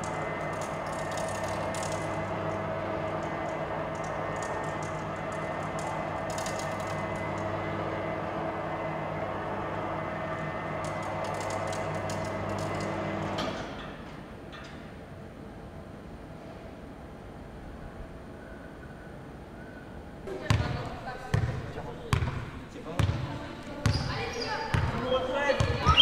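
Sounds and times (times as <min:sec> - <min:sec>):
low electrical buzz: 0:00.0 - 0:18.5.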